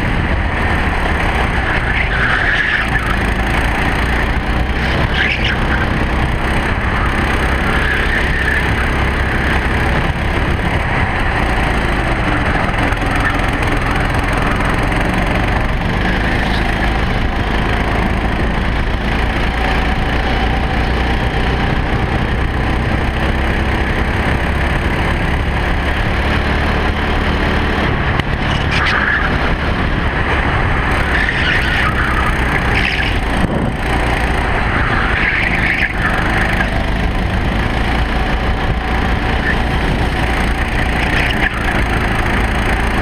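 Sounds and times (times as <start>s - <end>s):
kart engine running hard: 0.0s - 43.0s
rough rushing noise: 0.0s - 43.0s.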